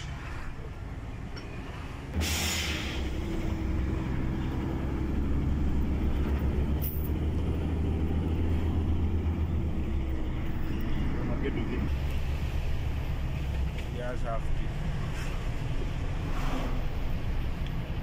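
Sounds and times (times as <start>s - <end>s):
truck engine droning: 0.0s - 18.0s
brief hiss: 2.2s - 3.1s.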